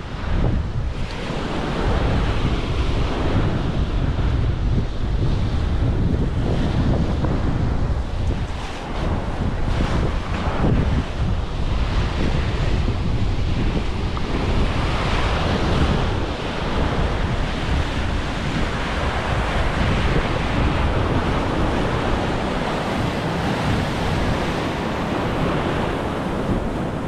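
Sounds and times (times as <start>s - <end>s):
wind buffeting microphone: 0.0s - 27.0s
surf breaking over rocks: 5.5s - 27.0s.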